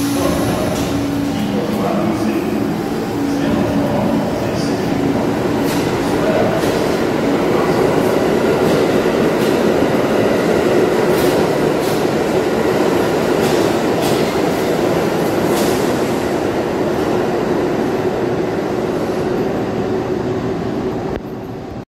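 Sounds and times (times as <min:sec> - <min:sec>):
train wheels and motors rumbling: 0:00.0 - 0:21.8.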